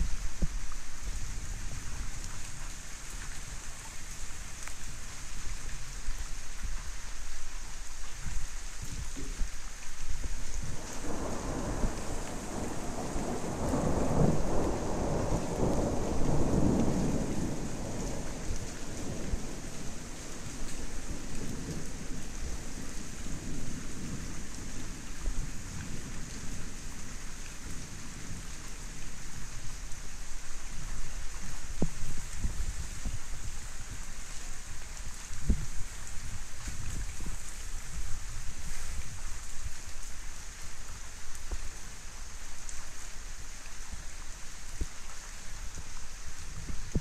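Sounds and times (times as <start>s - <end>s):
steady rain falling: 0.0s - 47.0s
thunder rumbling: 10.7s - 26.5s.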